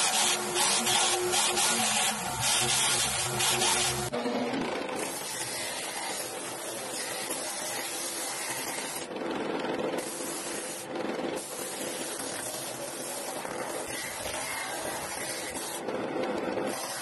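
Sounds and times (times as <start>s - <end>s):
disc sander sanding wood: 0.0s - 4.1s.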